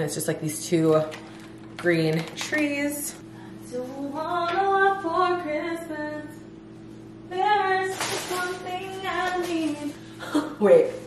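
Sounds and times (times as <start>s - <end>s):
woman singing: 1.8s - 6.4s, 7.3s - 11.0s.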